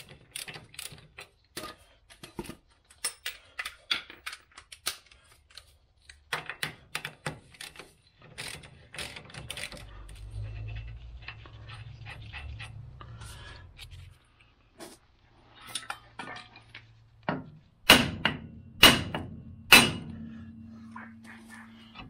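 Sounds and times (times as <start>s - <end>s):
hand ratchet clicking: 0.1s - 1.3s, 3.0s - 10.4s
low steady hum: 15.4s - 22.0s.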